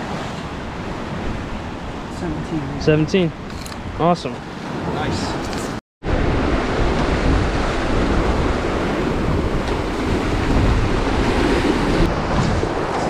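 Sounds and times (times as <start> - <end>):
wind buffeting microphone: 0.0 - 13.0
waves breaking on rocks: 6.2 - 13.0.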